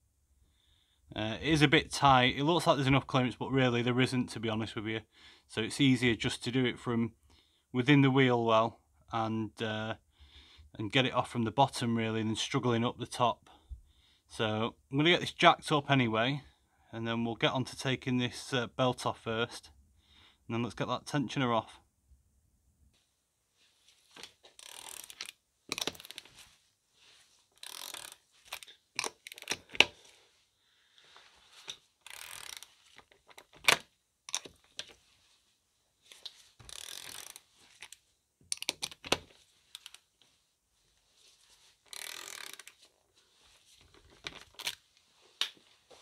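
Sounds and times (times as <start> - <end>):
socket ratchet clicking: 24.6 - 26.2, 27.6 - 29.9, 32.0 - 32.7, 33.3 - 34.5, 36.6 - 40.0, 41.9 - 42.7.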